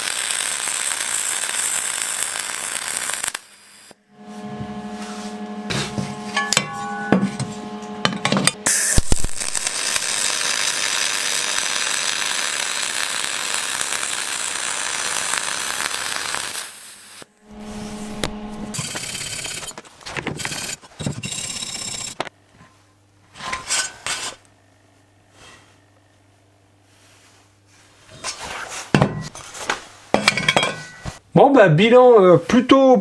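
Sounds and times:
welding arc hissing: 0.0s - 6.0s, 8.4s - 22.2s.

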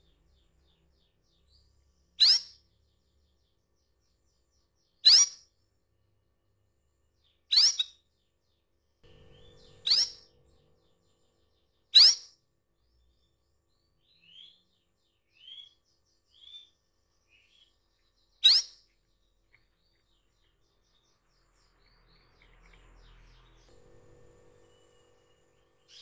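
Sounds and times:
soft canary chirps: 0.0s - 26.0s
canary call notes: 2.2s - 2.6s, 5.0s - 5.4s, 7.5s - 7.9s, 9.1s - 10.4s, 11.9s - 12.3s, 18.4s - 18.8s.

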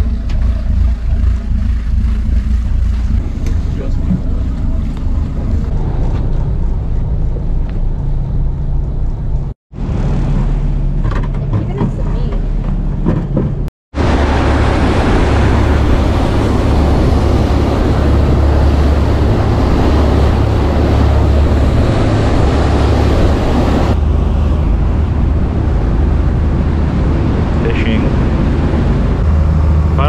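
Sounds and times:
wake water rushing: 0.0s - 8.5s, 13.9s - 30.0s
boat engines droning: 0.0s - 30.0s
wind rushing: 13.9s - 29.7s.

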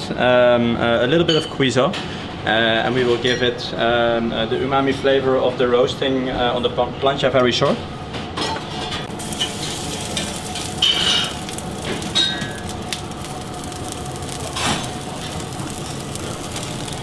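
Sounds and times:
fat sizzling on griddle: 9.1s - 17.0s.

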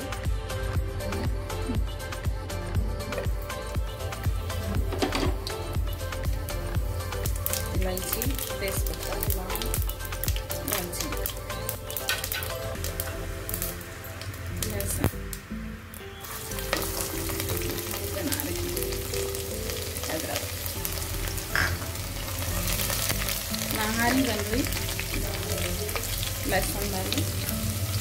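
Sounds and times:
garlic sizzling in hot oil: 4.1s - 28.0s.

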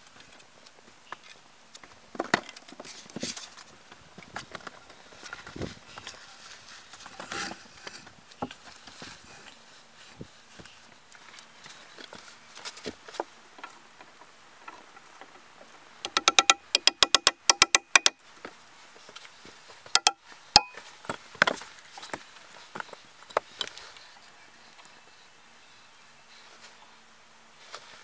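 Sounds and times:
ringing metallic clicks: 16.1s - 18.2s, 20.0s - 20.8s.

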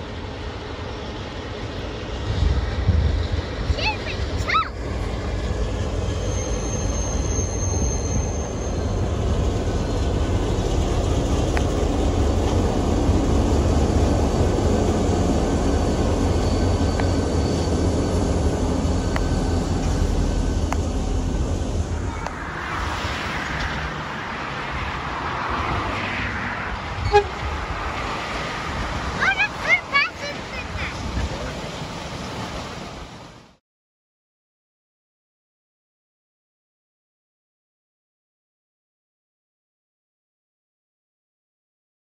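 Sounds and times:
diesel locomotive rumble: 0.0s - 33.5s
hissy train noise: 0.0s - 33.5s.

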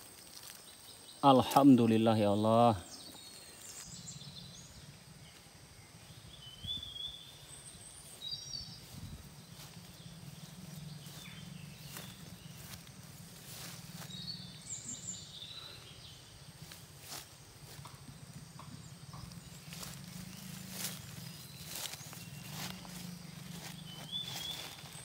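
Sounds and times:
footsteps through grass: 0.0s - 4.0s, 7.2s - 25.0s
steady low hum: 3.5s - 25.0s
high bird chirps: 6.3s - 16.2s, 18.6s - 25.0s.

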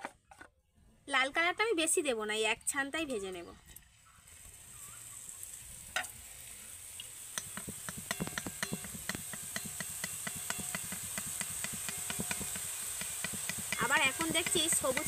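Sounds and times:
batter sizzling in hot oil: 3.9s - 15.0s.

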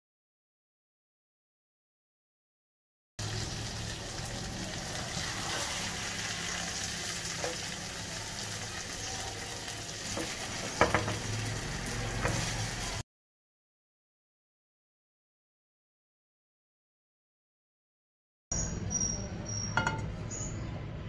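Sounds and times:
curry sizzling in frying pan: 3.2s - 13.0s
spatula scraping pan: 5.1s - 7.8s, 10.0s - 13.0s
spatula knocking against pan: 10.1s - 11.3s, 19.8s - 20.1s.

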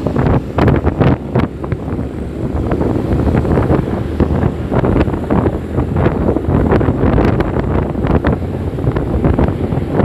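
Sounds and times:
wind buffeting microphone: 0.0s - 10.0s.

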